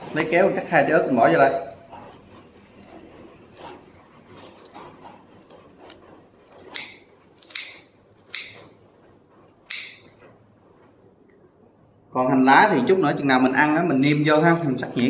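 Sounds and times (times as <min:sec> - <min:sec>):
scissors snipping chili peppers: 0:06.5 - 0:08.6.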